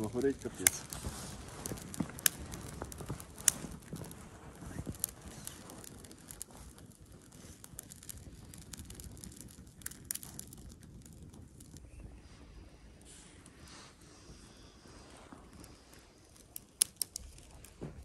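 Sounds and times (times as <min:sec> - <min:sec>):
twigs rustling: 0:00.0 - 0:10.8
fire crackling: 0:00.0 - 0:18.0.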